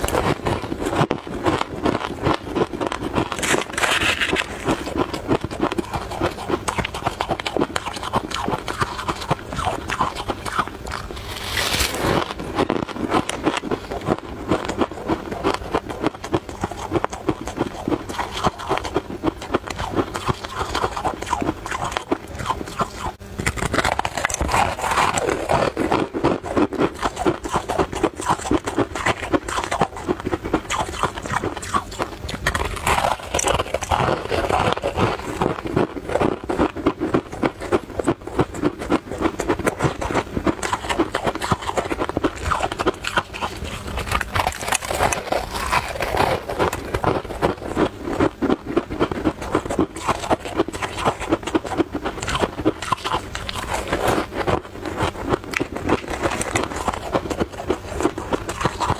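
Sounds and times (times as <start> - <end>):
crunching and chewing crispy snack: 0.0 - 58.9.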